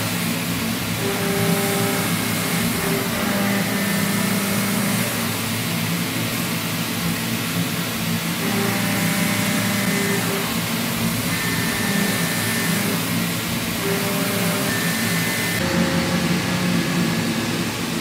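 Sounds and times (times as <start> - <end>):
milling cutter machining steel: 0.0 - 18.0
low hum: 13.8 - 18.0.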